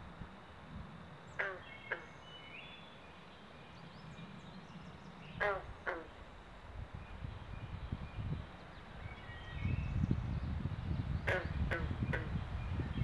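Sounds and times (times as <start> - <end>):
frogs croaking: 0.0 - 6.6, 11.1 - 12.8.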